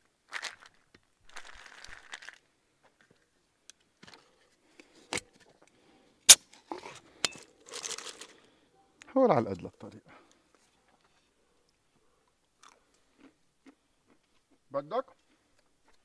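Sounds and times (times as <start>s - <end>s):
rustling of bag: 0.3s - 2.4s, 6.8s - 8.6s.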